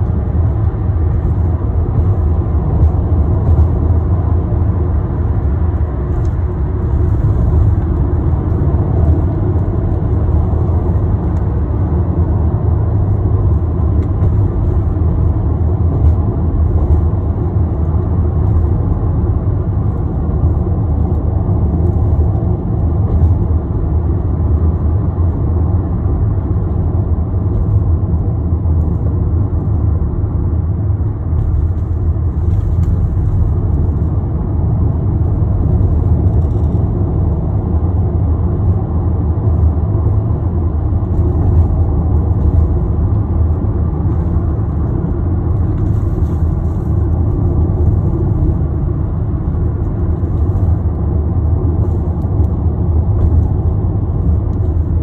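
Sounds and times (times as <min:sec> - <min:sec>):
car interior road rumble: 0:00.0 - 0:55.0.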